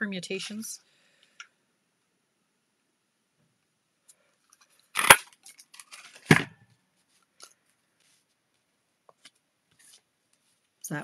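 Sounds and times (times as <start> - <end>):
paper rustling and clicks: 4.6 - 6.5.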